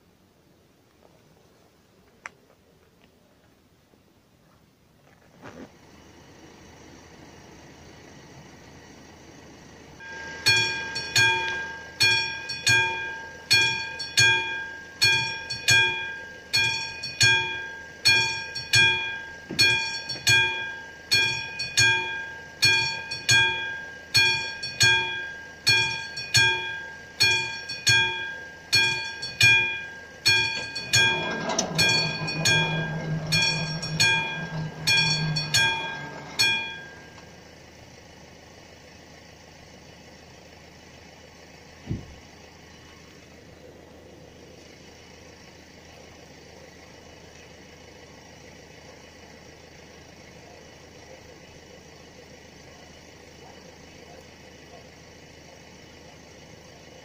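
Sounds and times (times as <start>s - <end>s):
barrier drive hum: 5.9s - 38.5s
level crossing warning bell: 10.0s - 37.8s.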